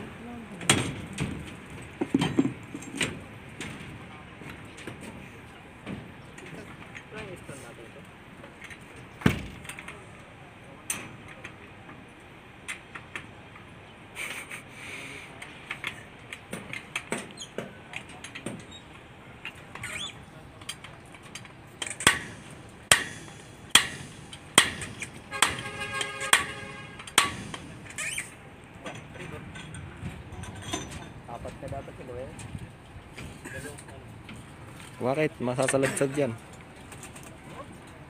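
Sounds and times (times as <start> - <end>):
metallic knocks from pump hose: 21.3 - 28.0.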